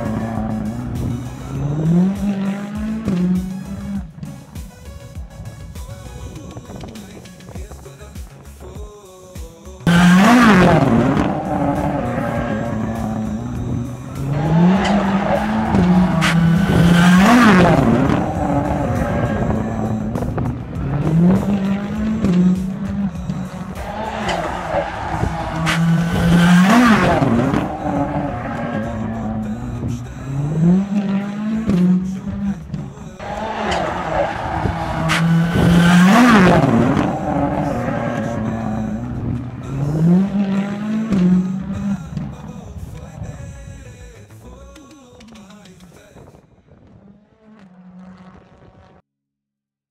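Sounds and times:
tyre and turbo rush: 0.0s - 7.8s, 9.8s - 43.5s
race car engines revving: 0.0s - 8.7s, 9.8s - 43.6s, 46.8s - 49.0s.

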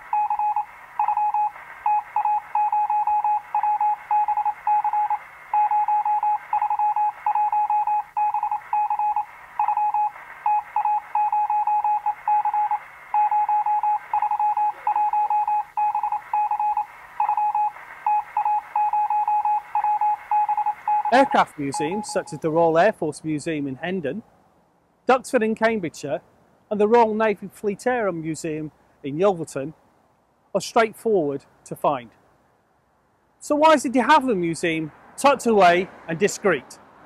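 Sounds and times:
morse code beeps: 0.0s - 22.4s
radio static hiss: 0.0s - 24.2s.

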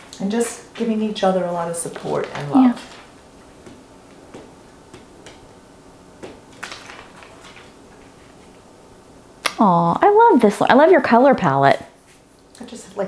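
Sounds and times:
paper rustling: 6.5s - 8.6s.

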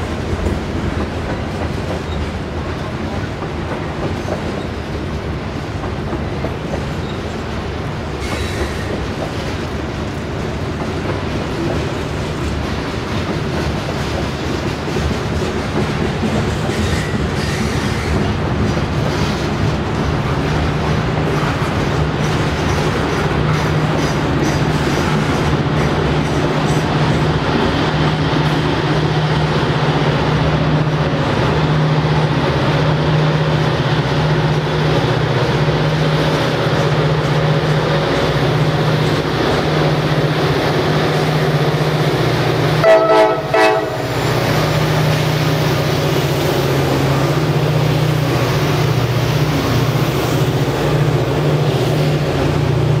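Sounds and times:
diesel locomotives droning: 0.0s - 53.0s
freight cars rolling on rails: 0.0s - 53.0s
locomotive horn blasts: 42.8s - 44.2s.

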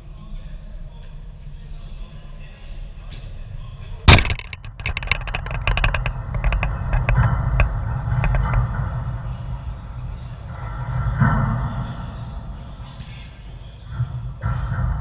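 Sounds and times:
camera rattling against wire fence: 4.1s - 11.3s
low rumble: 5.5s - 15.0s.

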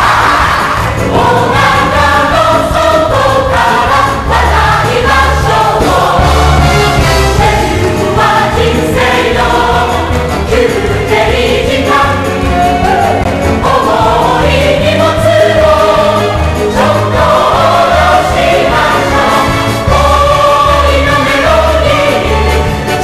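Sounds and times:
cast singing in chorus: 0.0s - 6.6s
orchestral accompaniment: 0.0s - 23.0s.

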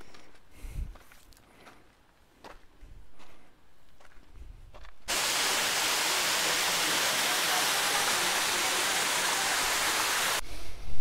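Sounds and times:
footsteps on dirt trail: 0.0s - 5.2s
waterfall pouring into pool: 5.1s - 10.4s.

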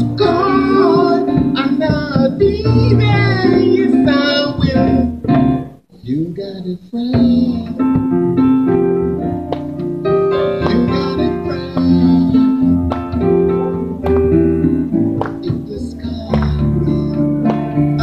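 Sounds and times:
man singing into a microphone: 0.0s - 5.3s, 5.9s - 8.2s, 10.4s - 12.8s, 15.2s - 18.0s
instrumental accompaniment: 0.0s - 6.0s, 7.0s - 18.0s.

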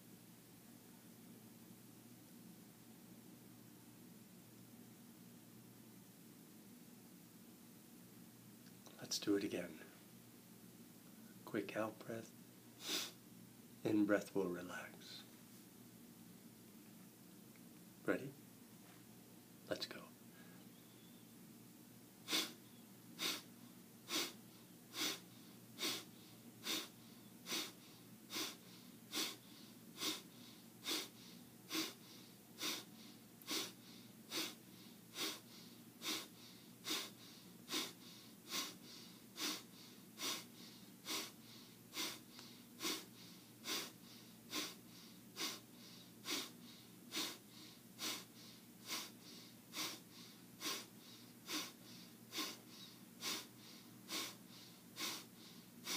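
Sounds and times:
man's forceful nasal out-breaths: 12.8s - 13.2s, 22.2s - 22.6s, 23.2s - 23.5s, 24.1s - 55.9s.

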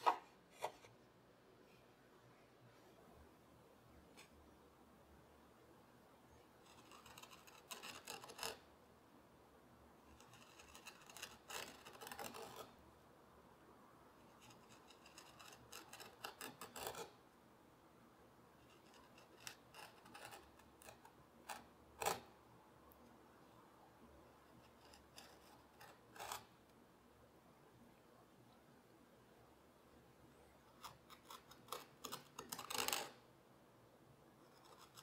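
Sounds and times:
chisel scraping wood: 6.6s - 8.6s, 10.2s - 12.7s, 14.4s - 17.2s, 18.7s - 22.3s, 24.5s - 26.6s, 30.7s - 33.2s, 34.5s - 35.0s.

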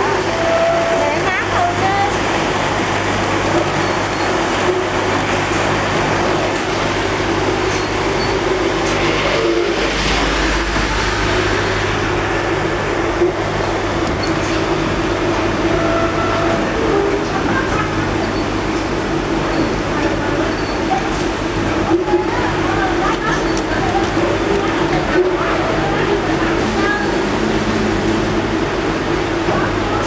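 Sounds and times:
conveyor machinery drone: 0.0s - 30.0s
deep rumble: 7.3s - 15.2s.

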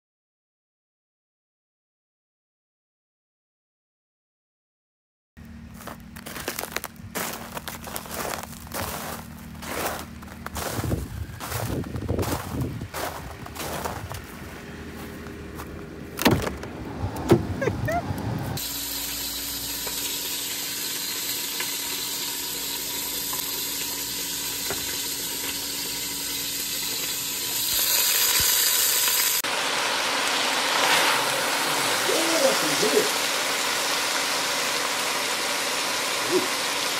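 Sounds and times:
footsteps outdoors: 5.4s - 18.6s
frying hiss with crackles: 18.6s - 36.9s.

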